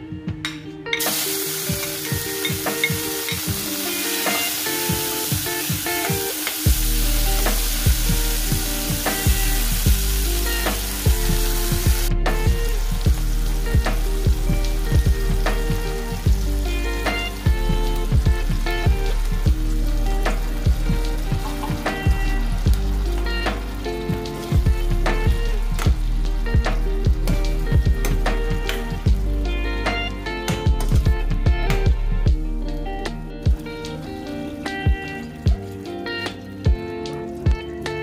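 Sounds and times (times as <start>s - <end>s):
vegetables sizzling in hot oil: 1.0s - 29.5s.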